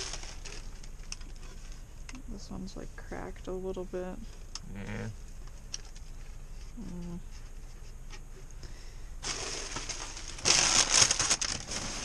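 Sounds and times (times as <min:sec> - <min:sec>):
plastic bags crinkling: 0:00.0 - 0:01.6, 0:09.2 - 0:12.0
voice murmuring: 0:04.6 - 0:05.2.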